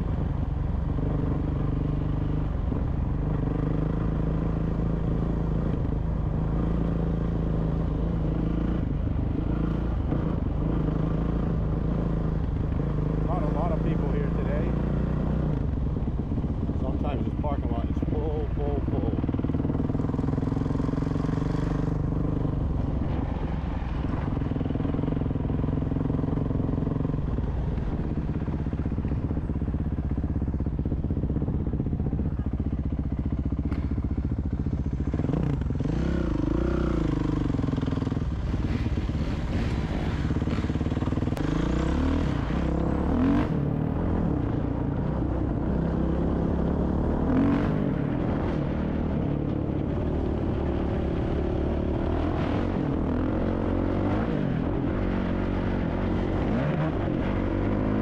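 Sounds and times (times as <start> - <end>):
dirt bike engine revving: 35.1 - 49.2.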